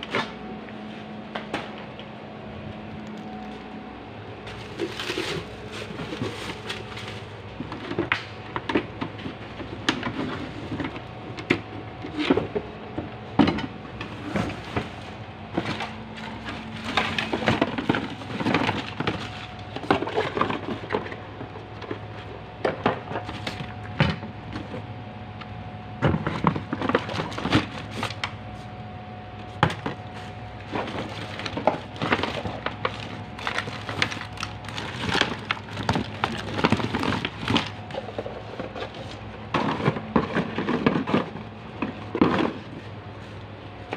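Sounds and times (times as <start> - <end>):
steady low hum: 0.0 - 43.9
plastic bags rustling: 4.4 - 8.4, 14.2 - 21.2, 30.0 - 41.4
items knocking and clattering: 4.5 - 14.9, 15.5 - 24.8, 26.0 - 28.2, 30.7 - 42.9.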